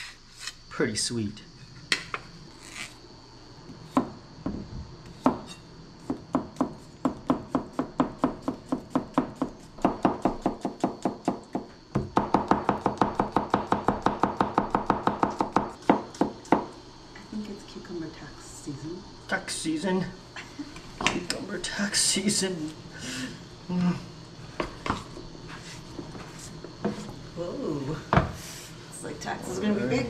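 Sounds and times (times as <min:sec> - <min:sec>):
knife chopping on wooden board: 0:05.2 - 0:16.7.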